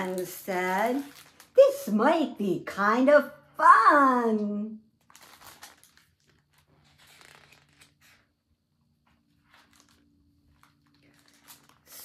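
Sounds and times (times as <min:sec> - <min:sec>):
book pages rustling: 0:05.0 - 0:08.4, 0:09.1 - 0:12.0.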